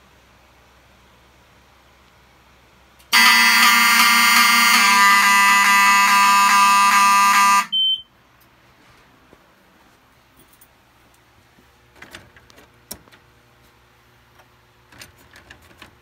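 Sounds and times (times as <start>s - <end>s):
fire alarm horn blast: 3.1s - 8.0s.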